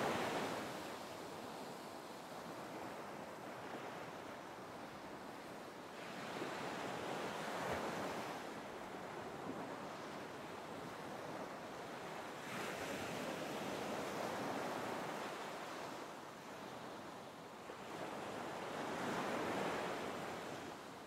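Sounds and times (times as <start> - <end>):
wind: 0.0 - 21.0.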